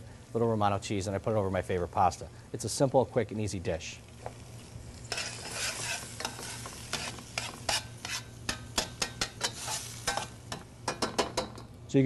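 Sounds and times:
meat sizzling in a pan: 0:00.0 - 0:11.6
metal tongs scraping a pan: 0:04.2 - 0:11.6.

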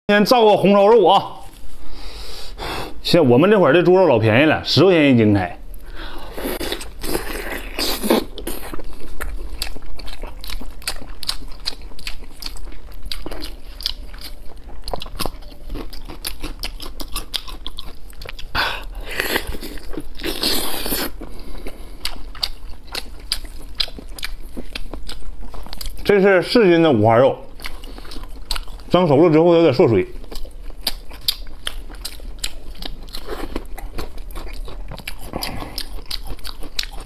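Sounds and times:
person chewing: 0:05.7 - 0:26.2, 0:27.4 - 0:29.0, 0:30.0 - 0:37.0.

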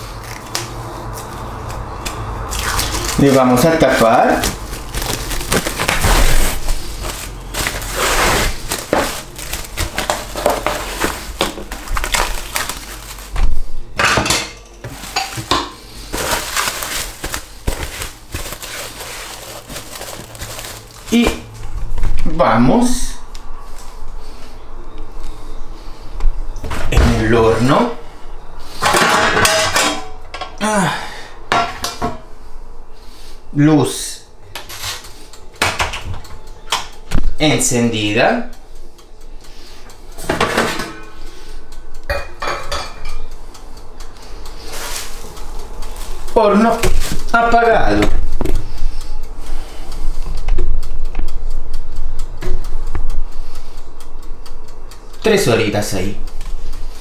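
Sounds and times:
container rustling and clattering: 0:04.8 - 0:13.4, 0:14.8 - 0:21.4
kitchenware clinking and knocking: 0:14.0 - 0:15.8, 0:42.1 - 0:43.2.

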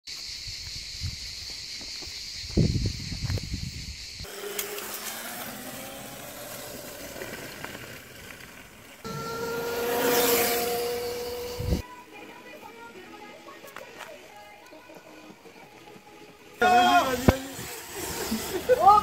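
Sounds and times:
electric kart motor whine: 0:04.2 - 0:11.8, 0:16.6 - 0:19.0
steady hiss: 0:16.7 - 0:19.0.

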